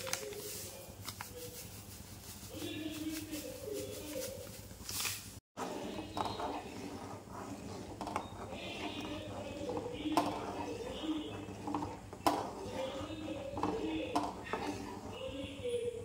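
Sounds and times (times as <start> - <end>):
metal spoon scraping pot: 5.6 - 15.9.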